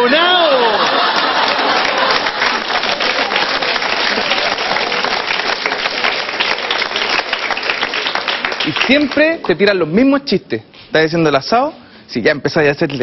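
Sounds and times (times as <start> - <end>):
audience applauding: 0.4 - 9.6.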